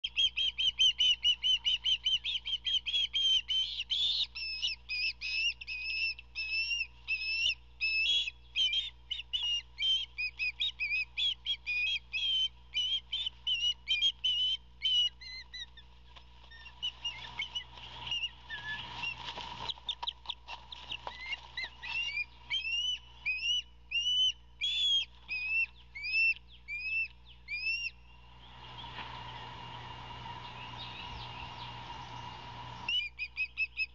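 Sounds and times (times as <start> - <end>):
ospreys whistled chirps: 0.0 - 15.7, 21.2 - 33.9
wings flapping: 16.1 - 22.8.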